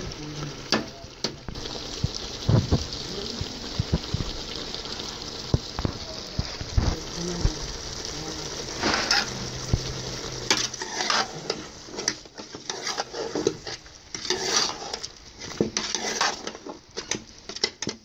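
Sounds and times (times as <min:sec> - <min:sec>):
food sizzling: 0:00.0 - 0:18.0
metal spoon scraping metal pot: 0:08.8 - 0:09.4, 0:10.5 - 0:18.0.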